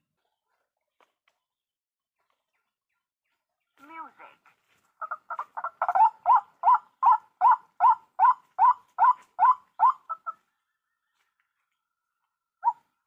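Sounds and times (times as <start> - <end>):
waterhen calling: 5.0 - 10.4.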